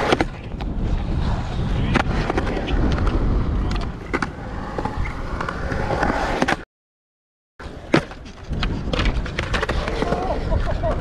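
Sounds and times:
skateboard wheels rolling on concrete: 0:00.0 - 0:06.6, 0:07.6 - 0:11.0.

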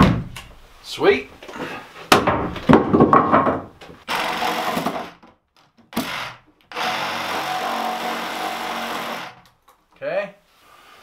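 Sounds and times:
wooden knocks and clatter: 0:01.5 - 0:04.0.

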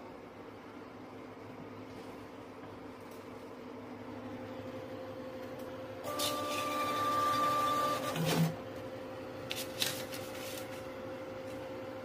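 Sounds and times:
steady low hum: 0:00.0 - 0:06.2.

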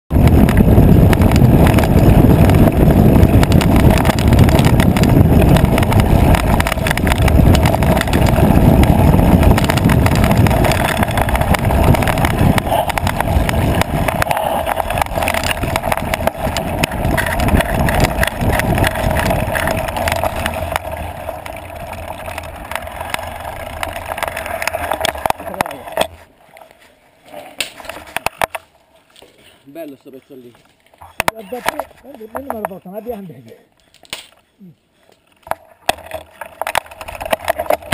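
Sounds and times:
wind rumble on microphone: 0:00.1 - 0:26.2, 0:35.6 - 0:37.9
bike rattling and knocking: 0:00.1 - 0:26.4, 0:27.4 - 0:28.7, 0:30.7 - 0:34.4, 0:35.4 - 0:37.9.

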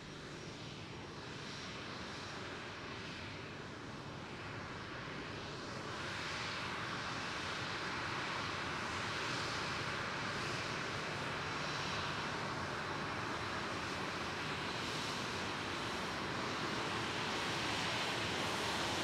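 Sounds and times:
jet engines rushing: 0:10.7 - 0:19.0.

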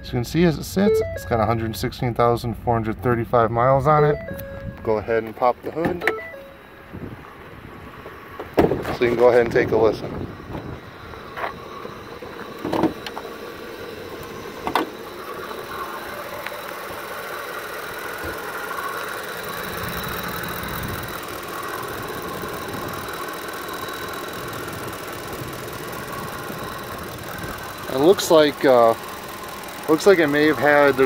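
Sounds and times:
engine idling: 0:00.0 - 0:31.0
thin high whine: 0:00.0 - 0:31.0.

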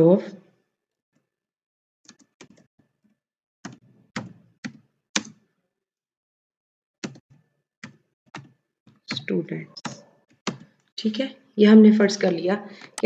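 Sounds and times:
computer keyboard keystrokes: 0:07.0 - 0:10.8.

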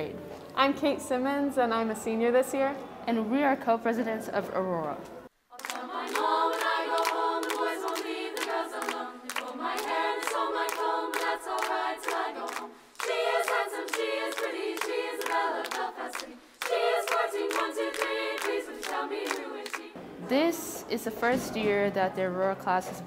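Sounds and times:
women's choir singing in harmony: 0:05.5 - 0:20.0
rhythmic hand clapping: 0:05.6 - 0:20.0.

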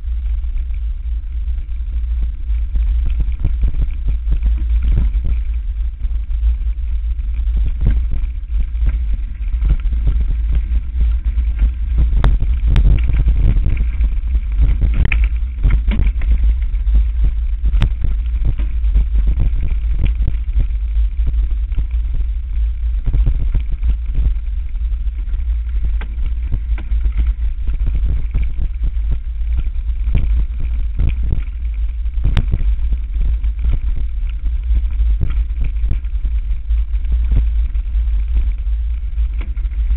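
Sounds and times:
wind rumble on microphone: 0:00.0 - 0:39.9.

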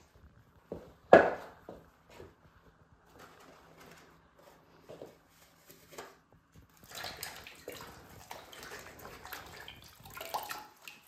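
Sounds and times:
water sloshing in a plastic basin: 0:06.6 - 0:11.0.

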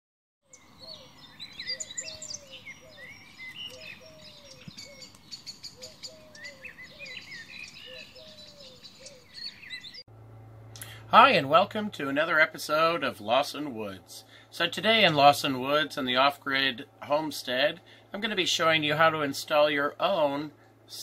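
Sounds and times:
small birds chirping: 0:00.4 - 0:10.1
low falling bird call: 0:00.5 - 0:10.0.

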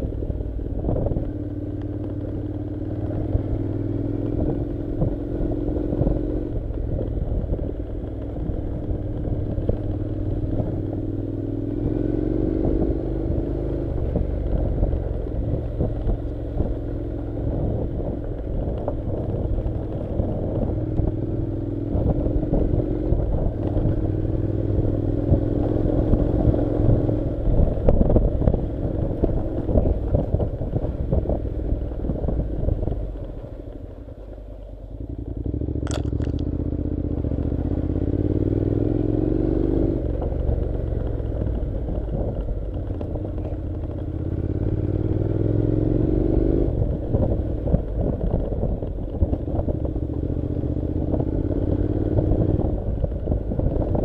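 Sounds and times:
motorcycle engine running: 0:00.0 - 0:54.0
tyres on gravel: 0:35.8 - 0:36.4.

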